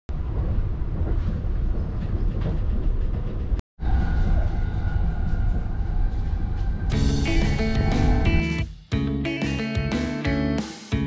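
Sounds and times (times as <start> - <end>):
train wheels rumbling on rails: 0.1 - 8.5
train whine: 0.1 - 8.6.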